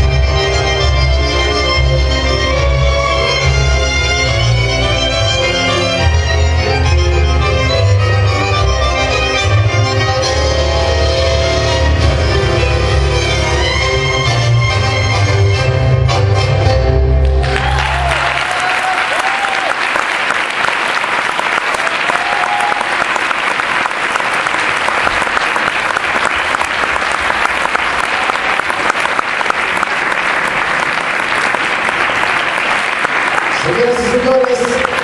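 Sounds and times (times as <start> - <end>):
tango music: 0.0 - 18.5
audience applauding: 17.2 - 35.0.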